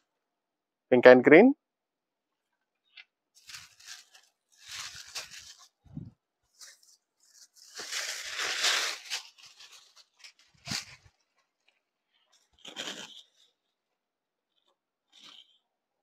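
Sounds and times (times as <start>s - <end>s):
fabric rustling and swishing: 3.4s - 11.3s.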